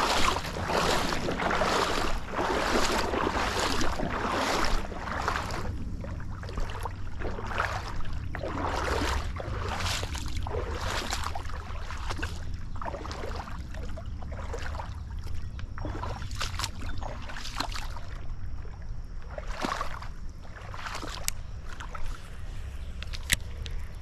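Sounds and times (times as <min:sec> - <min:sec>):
creek water splashing: 0:00.0 - 0:24.0.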